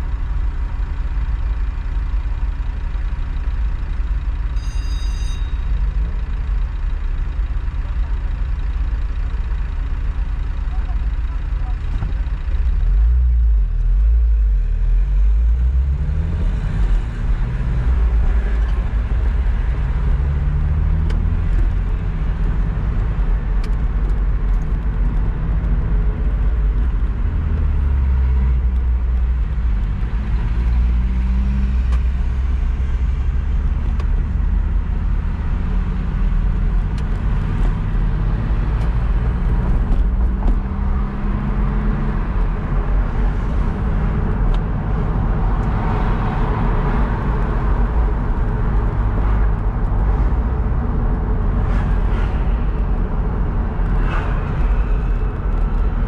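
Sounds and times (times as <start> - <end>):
road noise: 0.0 - 56.0
car engine accelerating: 12.7 - 56.0.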